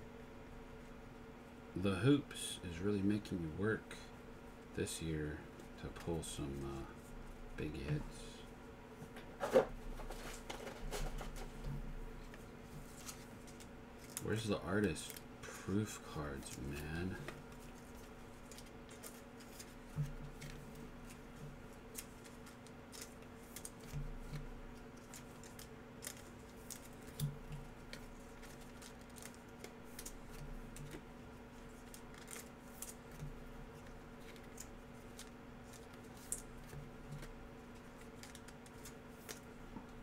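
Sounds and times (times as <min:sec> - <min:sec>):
low electrical hum: 0:00.0 - 0:40.0.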